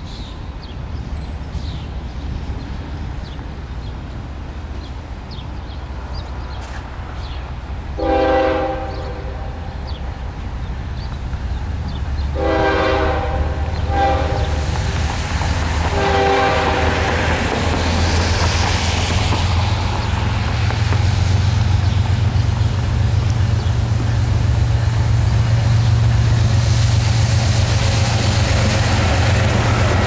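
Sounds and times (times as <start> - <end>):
diesel locomotive rumble: 0.0 - 30.0
locomotive horn blasts: 8.0 - 9.8, 12.4 - 14.7, 15.9 - 17.1.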